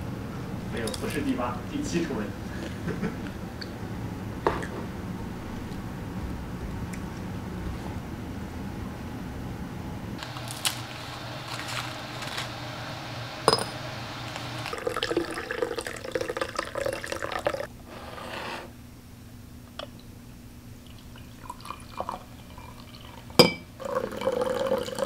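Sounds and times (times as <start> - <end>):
glassy clink: 13.5 - 13.8, 23.4 - 25.0
water pouring into teapot: 14.3 - 17.7, 20.8 - 25.0.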